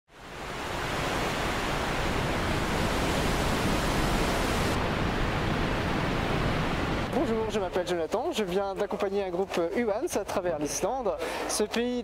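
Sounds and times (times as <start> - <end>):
waterfall rushing: 0.2 - 8.3.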